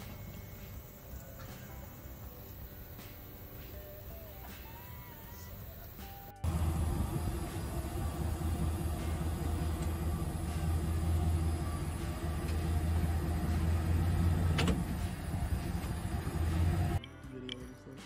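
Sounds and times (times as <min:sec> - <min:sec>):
pickup truck engine droning: 0:06.4 - 0:17.0.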